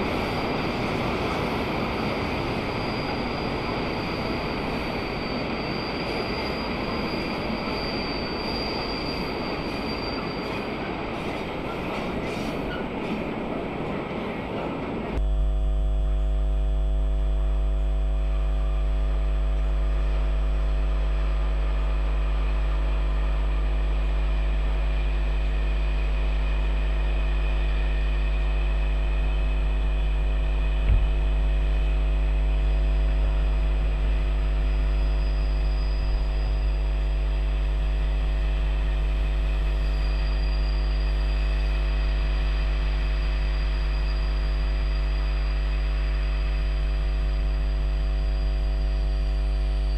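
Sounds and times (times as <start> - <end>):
train coaches rolling past: 0.0 - 15.2
loud electrical hum: 15.2 - 29.3.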